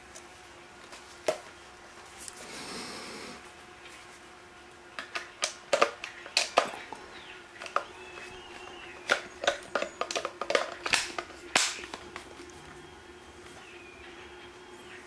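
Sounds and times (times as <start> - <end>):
plastic clicks and rattles: 9.0 - 12.0.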